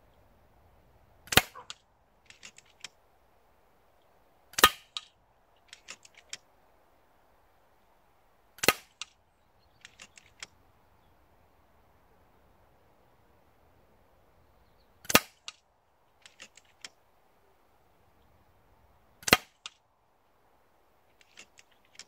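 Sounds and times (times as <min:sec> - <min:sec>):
air rifle shots: 0:01.3 - 0:01.8, 0:04.6 - 0:05.1, 0:08.6 - 0:09.1, 0:15.1 - 0:15.5, 0:19.2 - 0:19.7
rifle lever action clicks: 0:01.3 - 0:02.9, 0:05.7 - 0:06.4.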